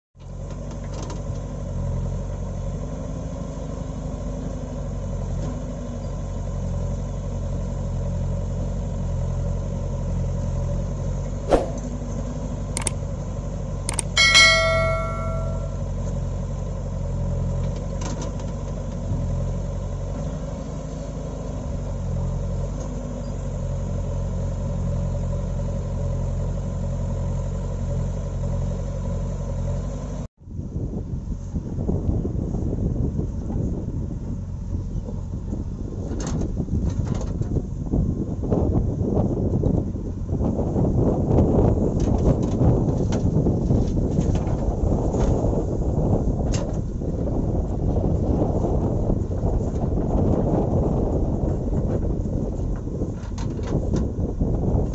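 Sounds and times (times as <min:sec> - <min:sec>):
sharp clicks: 0:13.9 - 0:14.2
ringing bell chime: 0:13.9 - 0:15.8.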